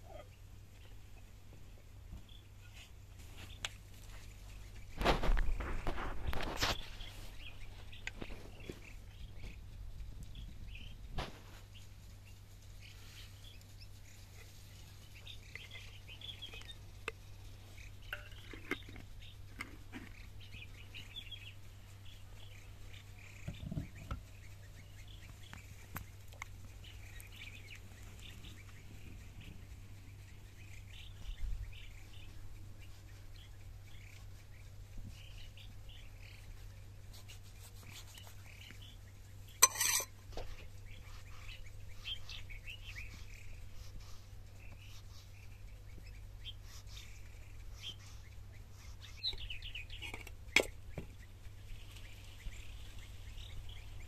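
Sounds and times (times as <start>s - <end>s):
faint steady hum: 0.0s - 54.0s
small birds chirping: 0.0s - 54.0s.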